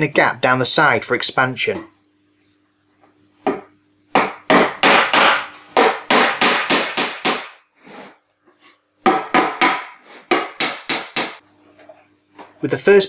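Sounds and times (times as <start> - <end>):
hammer driving nails into wood: 4.2 - 7.6, 9.1 - 11.4.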